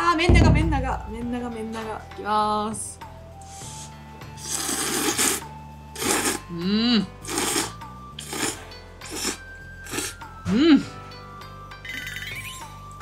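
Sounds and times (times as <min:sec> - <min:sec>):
background music: 0:00.0 - 0:13.0
noodles being slurped: 0:03.5 - 0:10.2.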